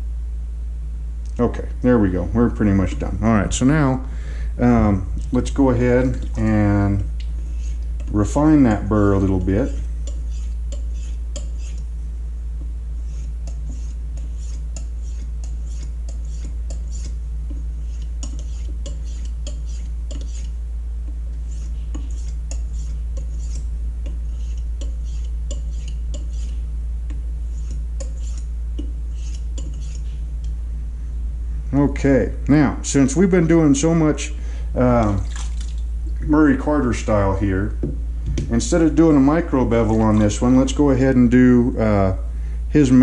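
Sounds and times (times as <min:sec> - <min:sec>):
steady low hum: 0:00.0 - 0:43.0
knife scraping sharpening stone: 0:09.7 - 0:11.9, 0:13.0 - 0:17.2, 0:17.8 - 0:20.6, 0:21.5 - 0:23.7, 0:24.3 - 0:26.6, 0:27.5 - 0:28.5, 0:29.1 - 0:30.2.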